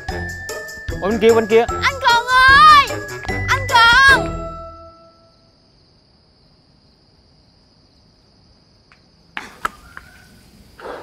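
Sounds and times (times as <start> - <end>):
insect chirring: 4.8 - 11.0.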